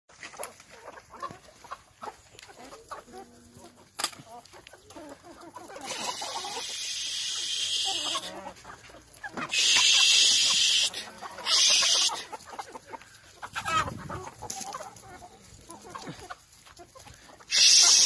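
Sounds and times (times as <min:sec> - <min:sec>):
chickens clucking: 0:00.1 - 0:18.0
loud steady hiss: 0:06.1 - 0:08.3, 0:09.5 - 0:12.2, 0:17.5 - 0:18.0.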